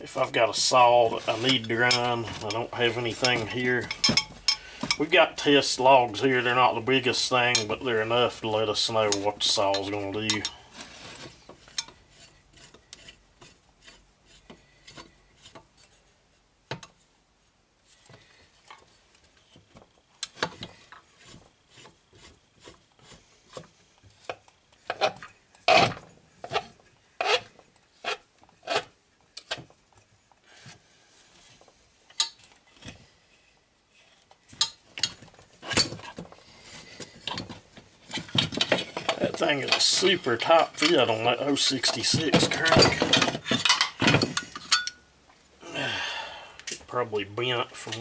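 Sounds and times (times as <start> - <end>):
metallic clicks and knocks: 1.5 - 5.1
press tool scraping metal: 9.1 - 16.0, 20.4 - 23.6, 24.9 - 28.9.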